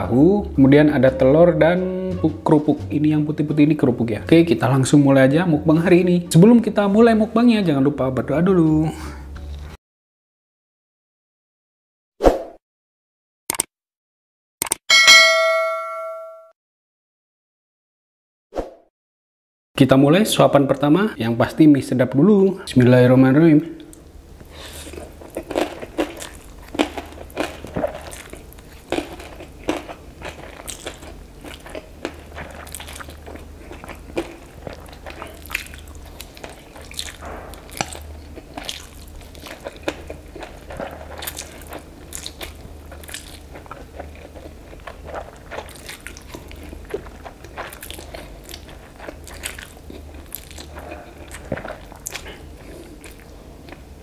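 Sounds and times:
person slurping and chewing noodles: 24.6s - 53.8s.

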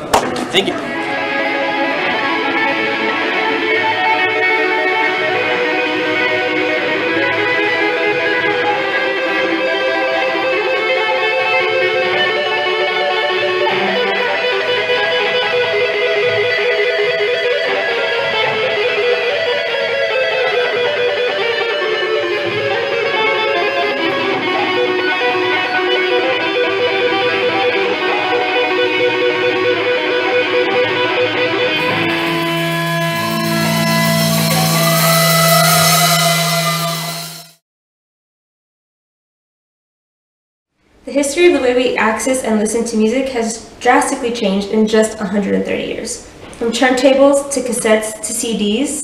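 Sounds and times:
electric guitars playing: 0.0s - 37.6s.

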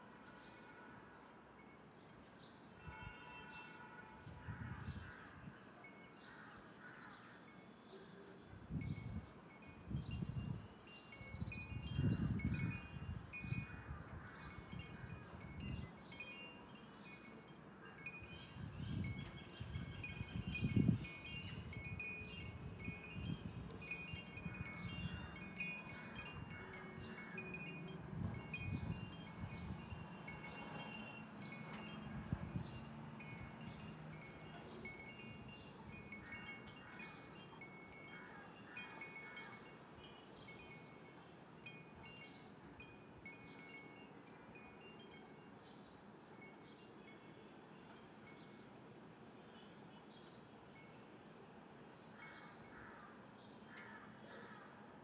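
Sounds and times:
wind chimes tinkling: 8.6s - 49.2s.

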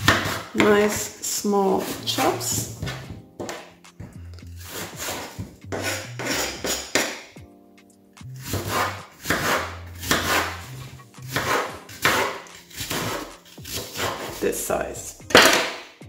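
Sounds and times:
knife sawing apple on wooden board: 0.0s - 1.1s, 1.7s - 2.3s, 4.6s - 7.2s, 8.4s - 14.5s
background music with bass line: 2.0s - 16.0s.

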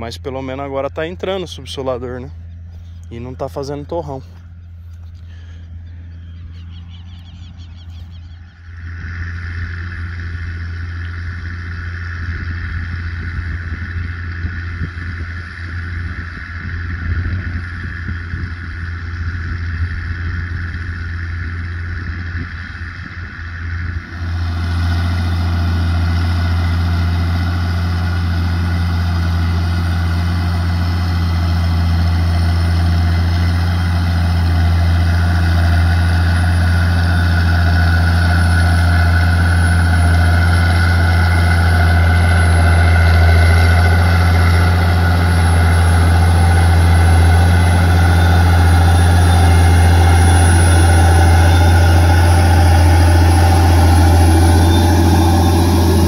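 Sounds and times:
tractor diesel engine droning: 0.0s - 56.0s.

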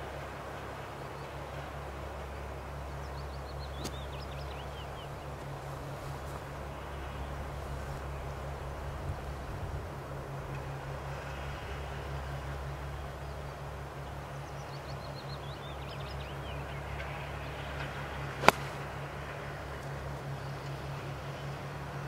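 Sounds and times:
steady low hum: 0.0s - 22.0s
golf club striking ball: 18.4s - 19.0s.

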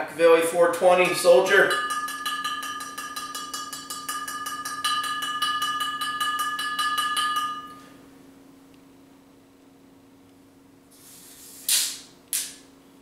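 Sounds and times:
glass bottle tapped: 1.6s - 7.8s.

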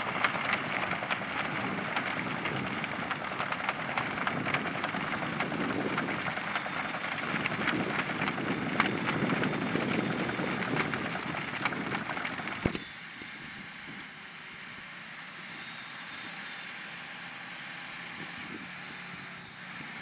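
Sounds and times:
manure clumps crackling patter: 0.0s - 12.8s.

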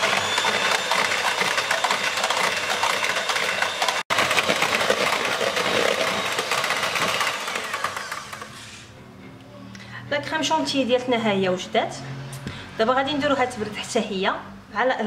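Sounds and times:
electric hand mixer whipping cream: 0.0s - 8.7s.

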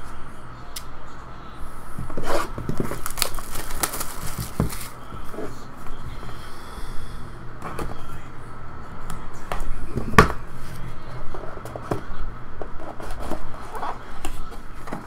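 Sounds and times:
box being opened by hand: 2.2s - 5.0s.

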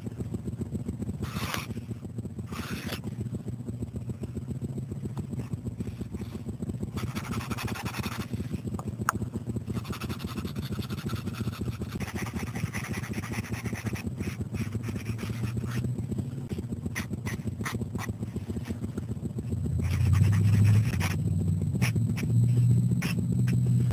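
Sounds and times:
steady low hum: 0.0s - 23.9s
marker scratching on paper: 1.2s - 1.7s, 2.5s - 3.0s, 7.0s - 8.6s, 9.7s - 15.8s, 16.5s - 18.8s, 19.8s - 21.2s, 23.0s - 23.6s.

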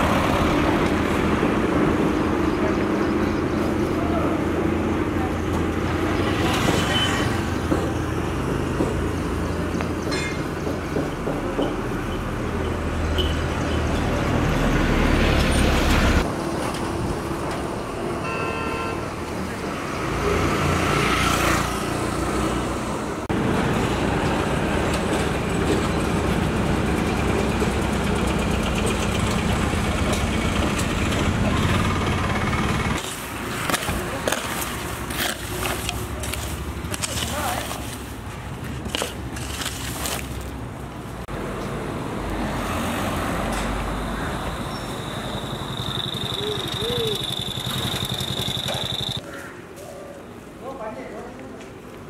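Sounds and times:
road traffic passing: 0.0s - 52.0s
broom scraping leaves and grit: 33.0s - 40.6s.

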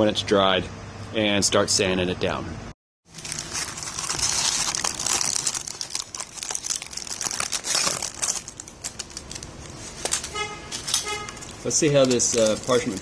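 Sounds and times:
paper and tape crinkling: 3.1s - 13.0s.

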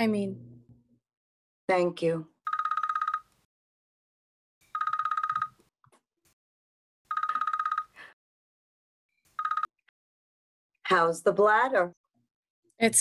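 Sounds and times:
electronic telephone ringing: 2.5s - 3.4s, 4.6s - 5.6s, 7.1s - 8.2s, 9.4s - 9.7s.

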